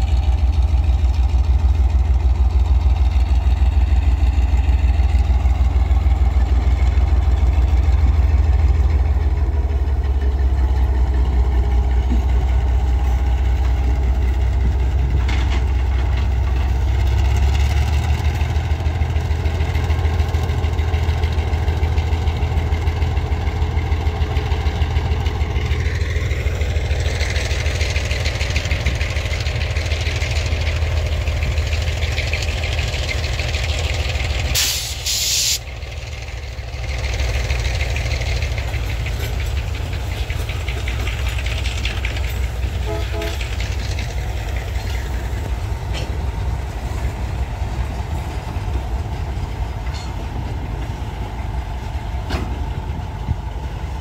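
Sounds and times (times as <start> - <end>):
diesel locomotive engine throbbing: 0.0 - 54.0
train cars rolling hiss: 31.8 - 54.0.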